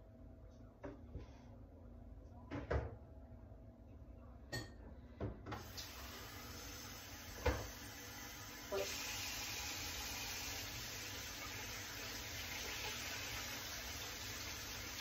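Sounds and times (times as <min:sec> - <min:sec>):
faint household clunks: 0:02.5 - 0:03.0, 0:04.5 - 0:05.7, 0:07.3 - 0:07.8.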